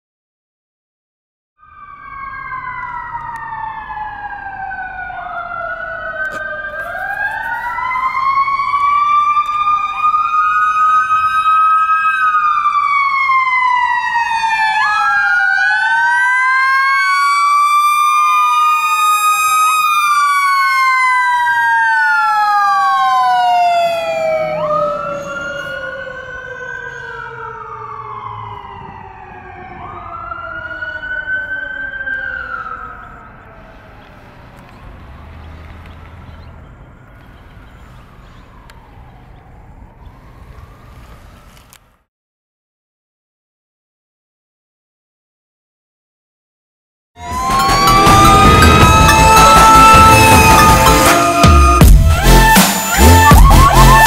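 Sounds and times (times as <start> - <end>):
fire engine sirens wailing: 1.6 - 41.8, 47.2 - 54.0.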